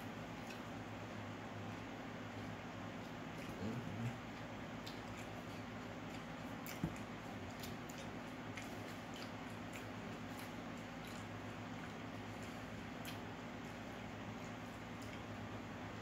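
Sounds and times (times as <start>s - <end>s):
low steady hum: 0.0s - 16.0s
chewing clicks: 0.4s - 0.8s, 2.4s - 13.3s, 14.4s - 15.3s.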